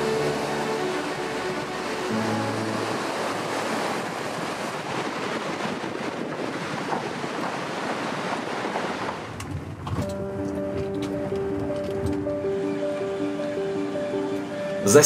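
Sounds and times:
river rushing: 0.0 - 9.4, 10.1 - 15.0
wind on microphone: 0.0 - 12.6.

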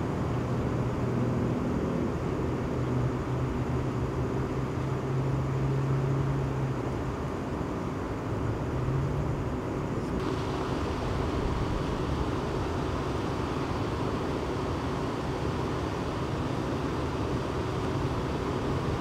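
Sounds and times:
road traffic rumble: 0.0 - 19.0
low hum: 10.2 - 19.0.

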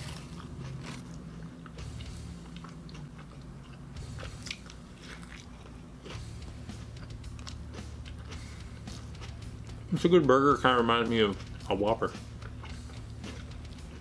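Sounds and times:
person chewing: 0.0 - 9.9, 11.4 - 14.0.

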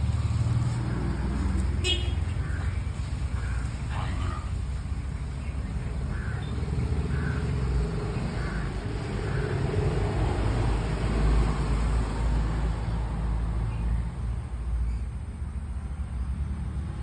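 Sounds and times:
crow cawing: 2.4 - 4.6, 6.1 - 7.7, 8.3 - 9.7.

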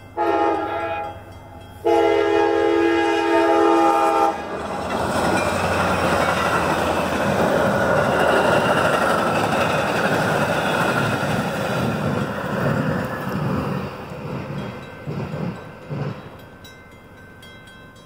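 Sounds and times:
train wheels on rails: 0.0 - 18.0
train horn chord: 0.1 - 4.6.

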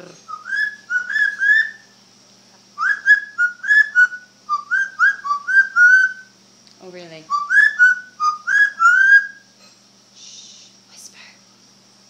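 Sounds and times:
parrot whistling sliding notes: 0.3 - 1.9, 2.8 - 6.3, 7.3 - 9.5.

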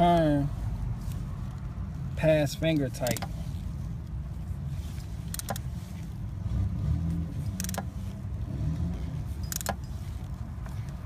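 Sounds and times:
steady low rumble: 0.0 - 11.0
socket tool clicks: 7.6 - 7.9.

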